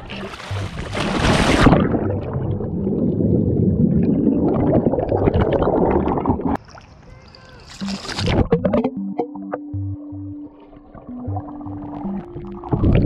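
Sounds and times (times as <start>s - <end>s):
underwater rumble and gurgle: 0.0s - 6.6s, 10.6s - 13.0s.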